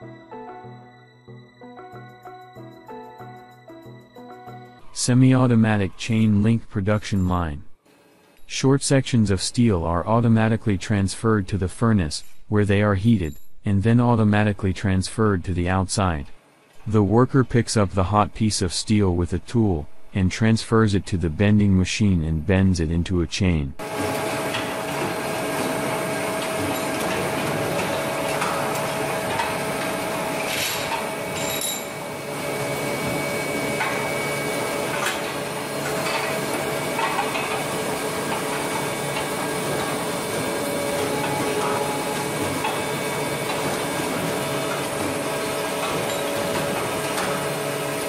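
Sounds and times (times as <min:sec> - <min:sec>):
machinery hum: 0:04.8 - 0:48.0
metallic clanks and knocks: 0:34.9 - 0:47.6.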